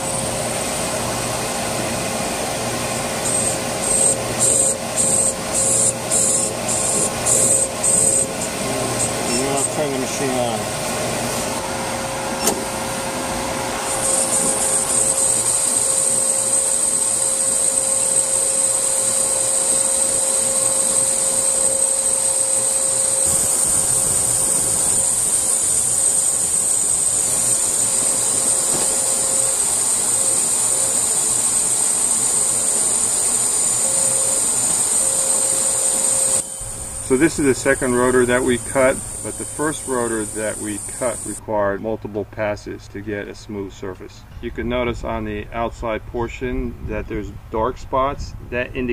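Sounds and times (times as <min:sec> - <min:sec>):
high-pitched cutting hiss: 0:00.0 - 0:11.7, 0:12.3 - 0:41.4
brake lathe humming: 0:00.0 - 0:41.4.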